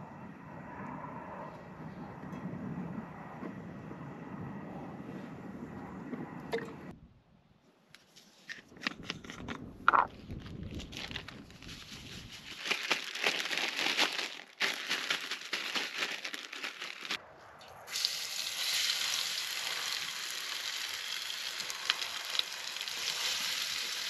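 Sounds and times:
plastic bag crinkling and rustling: 0:10.1 - 0:17.2
loud crackle: 0:10.4 - 0:17.2, 0:19.7 - 0:24.0.

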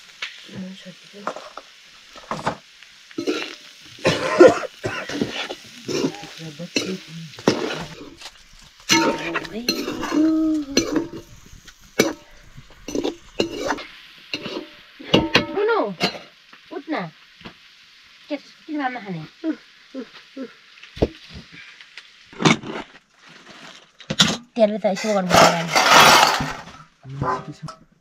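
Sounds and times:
meat sizzling in a pan: 0:00.0 - 0:23.2
spoon scraping a pan: 0:03.2 - 0:16.4, 0:24.9 - 0:26.7.

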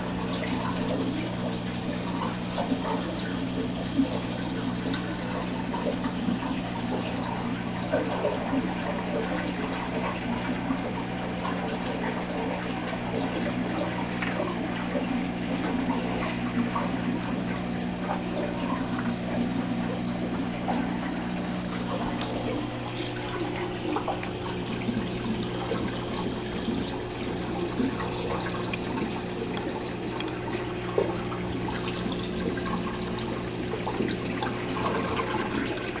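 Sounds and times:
constant low hum: 0:00.0 - 0:36.0
water trickling and bubbling: 0:00.0 - 0:36.0.

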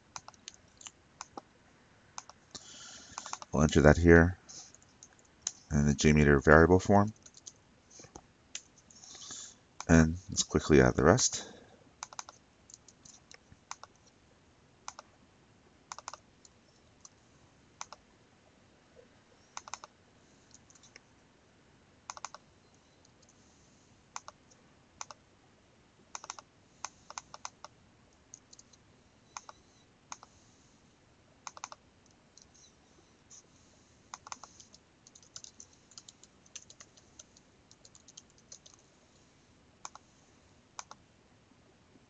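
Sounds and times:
keyboard keystrokes: 0:15.9 - 0:16.2, 0:19.6 - 0:19.9, 0:22.1 - 0:22.4, 0:31.5 - 0:31.8, 0:34.2 - 0:38.8.

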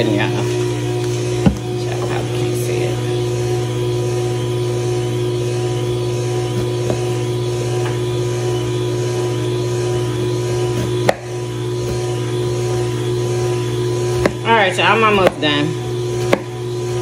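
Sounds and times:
juicer motor humming: 0:00.0 - 0:17.0.

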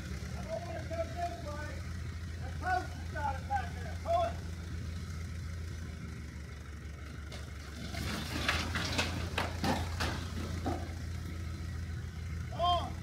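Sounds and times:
diesel engine running: 0:00.0 - 0:13.0
sharp cracks and knocks: 0:07.3 - 0:11.3.

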